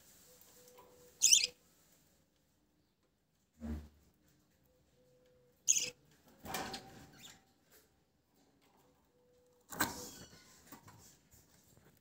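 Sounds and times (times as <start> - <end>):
short high bird chirp: 1.2 - 1.5, 5.7 - 5.9.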